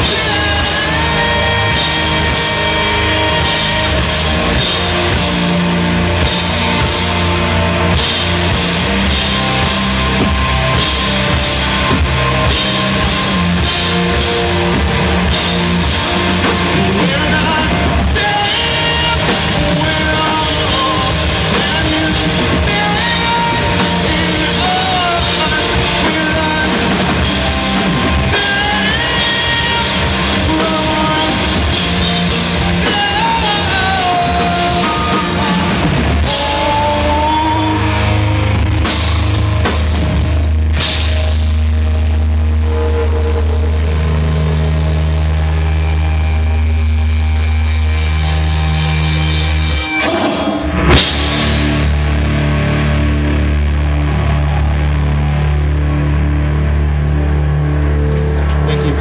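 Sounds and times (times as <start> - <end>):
drum kit beat: 0.0 - 42.0, 48.7 - 53.4
electric guitars: 0.0 - 59.0.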